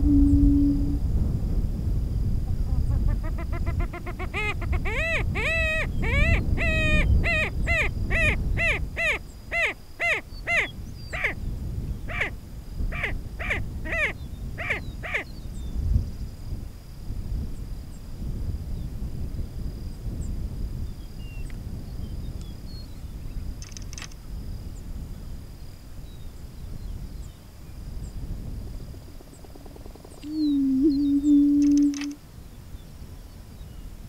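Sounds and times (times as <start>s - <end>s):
bird harsh caw-like calls: 3.3s - 11.4s, 12.1s - 12.3s, 12.9s - 15.3s.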